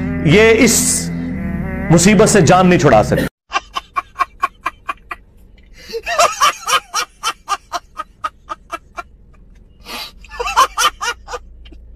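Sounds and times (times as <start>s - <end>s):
man laughing loudly: 3.5s - 5.2s, 5.8s - 9.1s, 10.3s - 11.6s.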